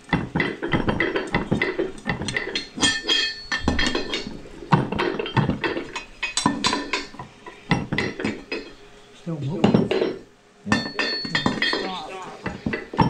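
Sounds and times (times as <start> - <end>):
metal tool clinking on metal parts: 9.7 - 13.0.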